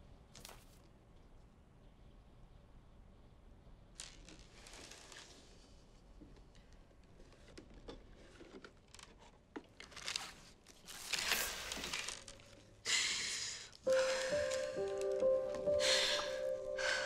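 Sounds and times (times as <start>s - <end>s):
paper rustling: 7.3s - 12.7s, 13.9s - 15.7s.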